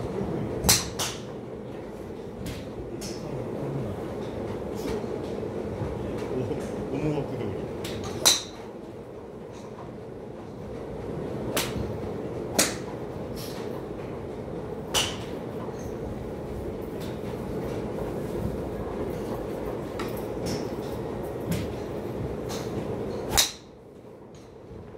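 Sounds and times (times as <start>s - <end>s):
steady low hum: 0.0s - 24.9s
golf clubs striking balls: 0.6s - 3.3s, 7.8s - 8.8s, 11.5s - 13.8s, 14.9s - 16.1s, 19.0s - 23.8s.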